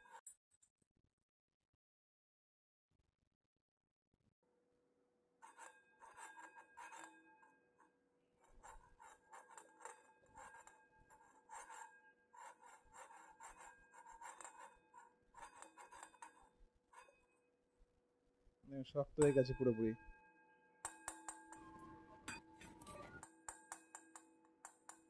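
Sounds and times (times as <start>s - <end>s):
metal spoon scraping a pan: 0.0s - 0.3s, 5.4s - 7.6s, 8.4s - 17.4s, 20.9s - 25.0s.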